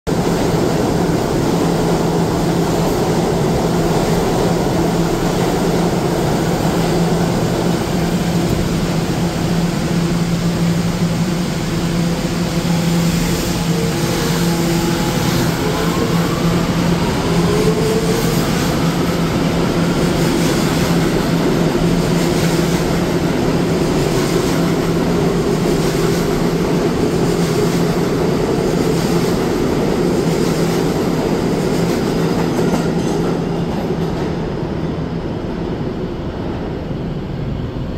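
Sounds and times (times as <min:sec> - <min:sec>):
subway train electrical hum: 0:00.1 - 0:37.9
train cars rumbling past: 0:00.1 - 0:37.9.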